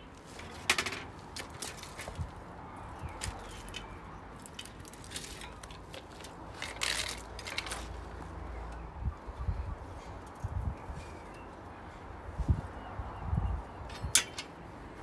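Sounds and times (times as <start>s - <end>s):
bicycle frame clanking and rattling: 0.3s - 2.4s, 3.2s - 8.8s, 13.8s - 14.7s.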